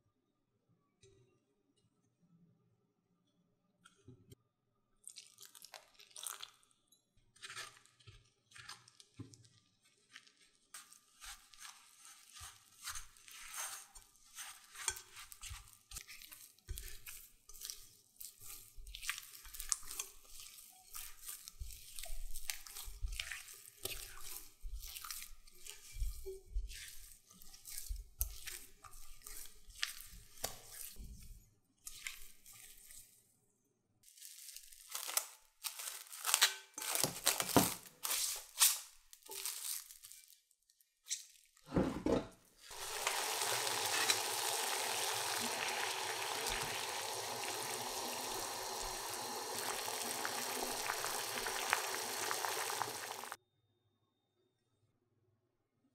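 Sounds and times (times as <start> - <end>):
dough squishing and slapping: 7.4 - 33.2, 34.0 - 40.3, 42.6 - 53.4
cling wrap crinkling: 34.0 - 41.6, 42.7 - 53.4.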